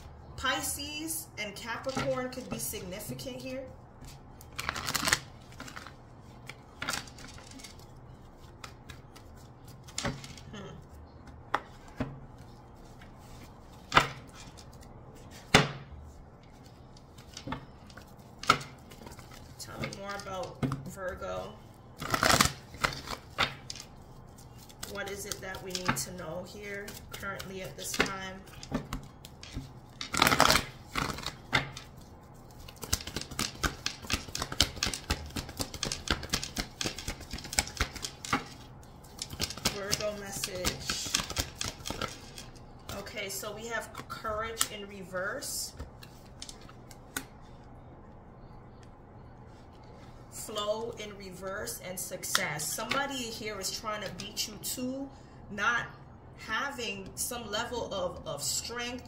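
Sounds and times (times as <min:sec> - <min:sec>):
cards shuffling: 0:04.0 - 0:15.6, 0:22.0 - 0:26.2, 0:26.8 - 0:43.0, 0:45.8 - 0:47.4
cards slapping on table: 0:32.8 - 0:38.6.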